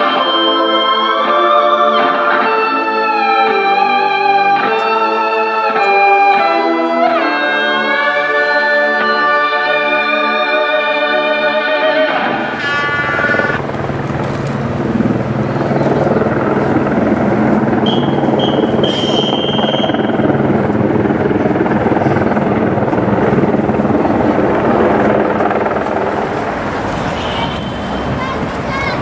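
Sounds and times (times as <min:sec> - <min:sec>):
helicopter engine and rotor drone: 0:00.0 - 0:29.0
high whistle-like tone: 0:17.8 - 0:20.2.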